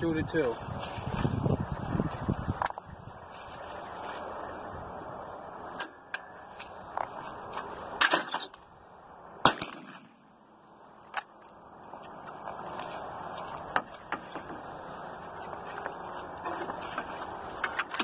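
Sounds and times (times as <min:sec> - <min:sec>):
shotgun shot: 0:09.4 - 0:10.2
gun handling clicks: 0:11.0 - 0:11.6.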